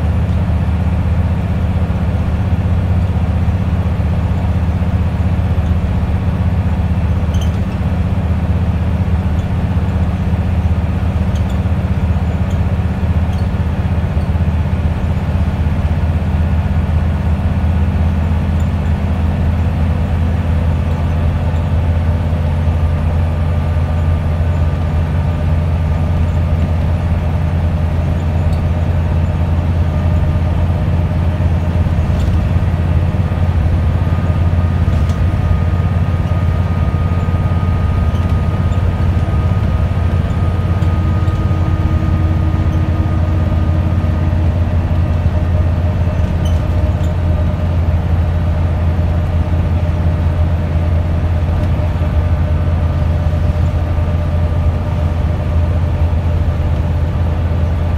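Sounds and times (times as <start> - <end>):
bus diesel engine drone: 0.0 - 57.9
road and tyre noise: 0.0 - 57.9.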